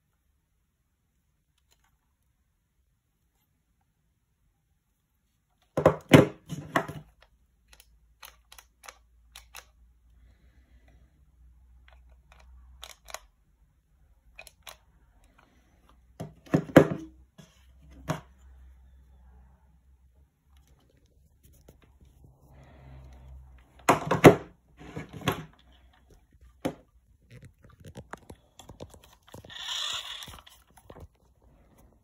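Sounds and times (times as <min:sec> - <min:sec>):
plastic toy clicking in hand: 0:07.2 - 0:09.8, 0:11.8 - 0:13.3, 0:14.3 - 0:15.4.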